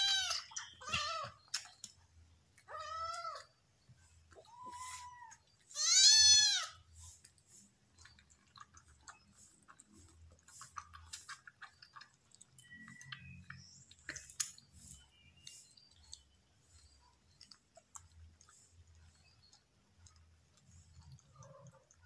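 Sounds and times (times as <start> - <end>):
kittens suckling from bottle: 0.0 - 22.0
kitten meowing: 4.4 - 6.7.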